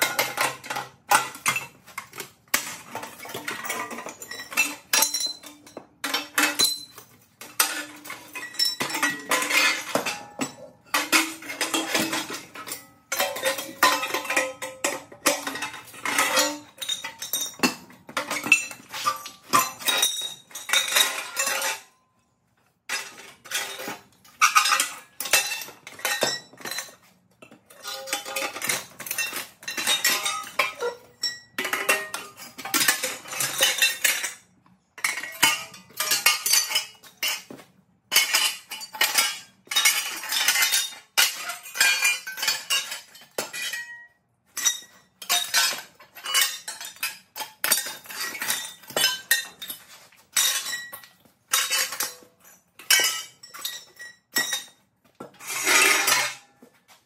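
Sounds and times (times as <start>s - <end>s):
metal pieces clattering on concrete: 0.0s - 21.9s, 22.9s - 56.6s.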